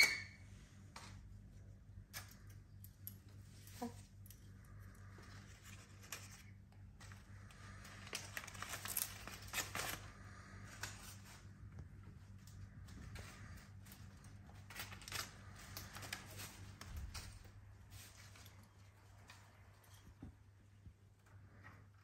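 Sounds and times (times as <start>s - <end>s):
bird tearing paper: 7.6s - 11.3s, 14.5s - 18.4s.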